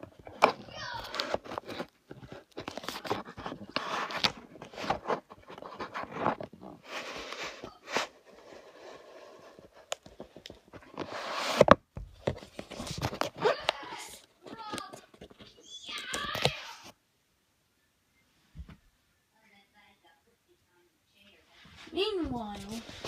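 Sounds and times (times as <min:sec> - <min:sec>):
rustling and scraping close to microphone: 0:00.0 - 0:15.7, 0:21.4 - 0:23.0.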